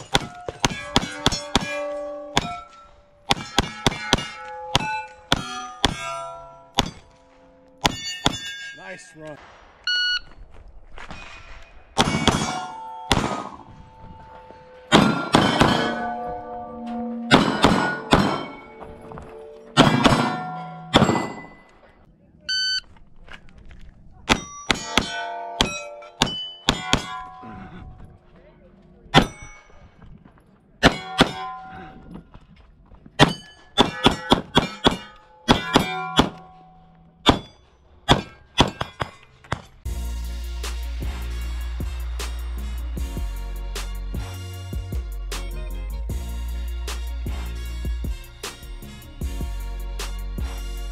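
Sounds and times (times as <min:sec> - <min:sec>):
steel target plates ringing: 0:00.0 - 0:09.4, 0:12.0 - 0:21.8, 0:24.3 - 0:27.6, 0:30.8 - 0:32.0, 0:33.2 - 0:39.3
pistol shots: 0:12.0 - 0:13.7, 0:14.9 - 0:16.0.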